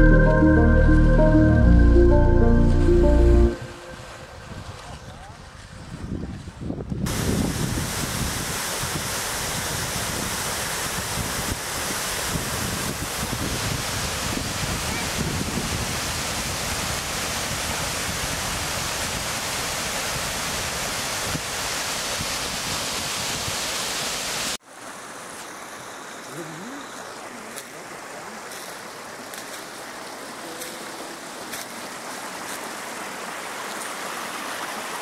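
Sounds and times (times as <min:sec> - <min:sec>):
water rushing over a weir: 0:07.1 - 0:35.0
small rocky stream babbling: 0:23.9 - 0:35.0.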